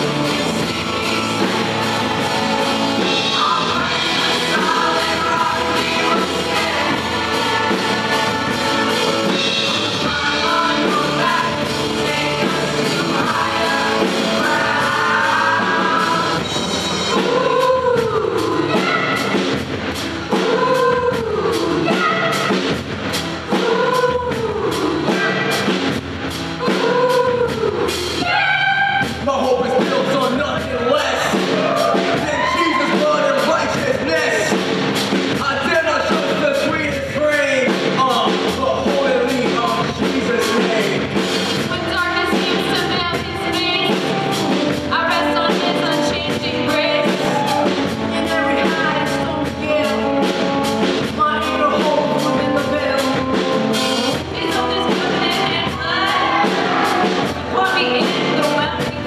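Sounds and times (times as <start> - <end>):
choir singing: 0.0 - 22.8, 23.4 - 26.0, 26.6 - 34.6, 51.8 - 59.0
instrumental accompaniment: 0.0 - 59.0
steady drum beat: 0.0 - 59.0.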